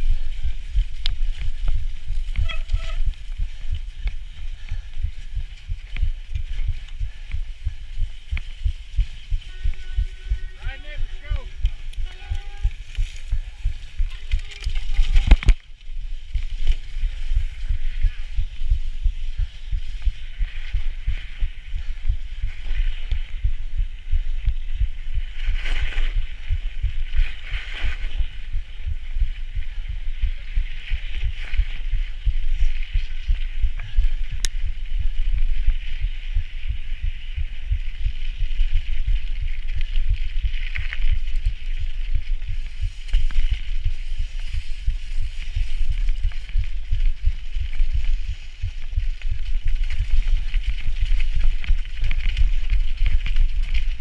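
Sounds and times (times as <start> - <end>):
bicycle bumps: 0.0 - 23.2
wind and vibration thumping: 0.0 - 54.0
sharp tick: 34.4 - 34.6.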